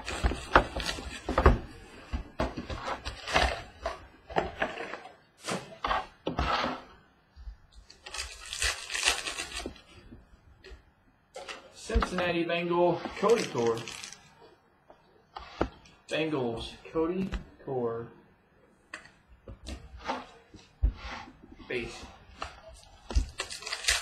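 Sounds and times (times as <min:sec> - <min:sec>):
pack wrapper crinkling: 0:07.9 - 0:09.8, 0:13.3 - 0:14.3, 0:23.3 - 0:24.0
taps scrapes and rustles of packs: 0:13.2 - 0:14.2.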